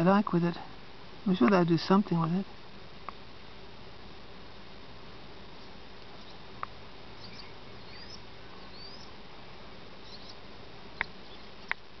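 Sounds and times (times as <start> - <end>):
steady hiss: 0.0 - 12.0
faint high rising chirps: 7.1 - 9.1, 10.0 - 10.4.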